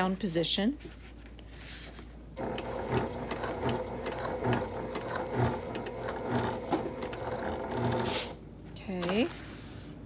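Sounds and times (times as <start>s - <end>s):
sewing machine stitching: 2.4s - 8.4s.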